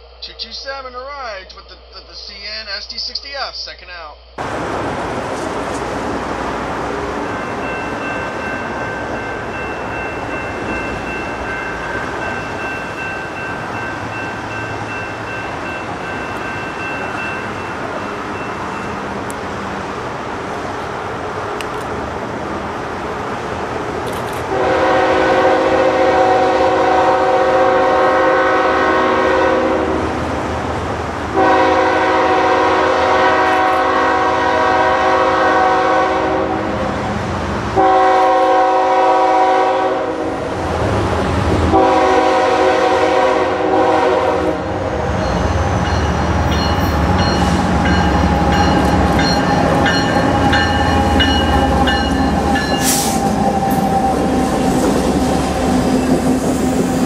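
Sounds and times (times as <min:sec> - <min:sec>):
train rumbling: 0:00.0 - 0:57.0
train air horn blasts: 0:24.5 - 0:30.2, 0:31.4 - 0:36.9, 0:37.8 - 0:40.5, 0:41.7 - 0:44.9, 0:49.8 - 0:53.5.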